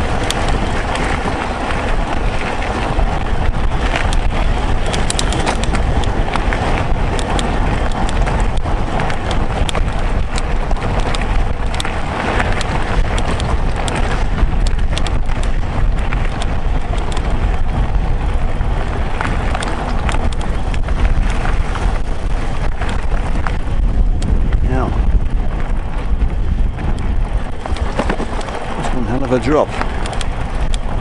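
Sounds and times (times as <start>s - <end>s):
bike rattling: 0.0s - 31.0s
bike tyres rolling over gravel: 0.0s - 31.0s
wind noise on microphone: 0.0s - 31.0s
sharp clicks: 3.8s - 17.6s, 19.2s - 22.0s, 26.9s - 31.0s.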